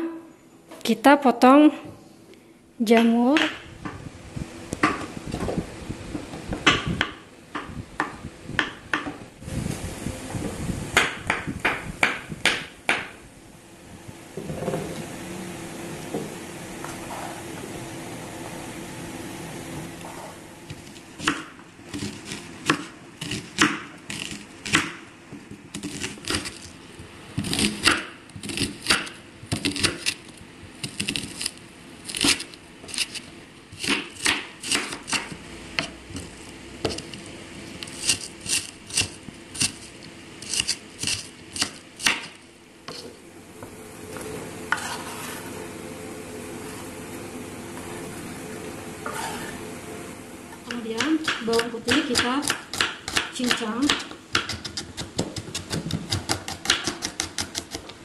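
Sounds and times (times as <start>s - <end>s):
knife chopping on wooden board: 11.0s - 13.2s, 21.2s - 25.0s, 27.4s - 30.2s, 33.8s - 37.2s, 37.9s - 43.1s, 50.7s - 57.9s
scrape of onion pushed off board: 44.7s - 45.6s, 49.0s - 49.7s.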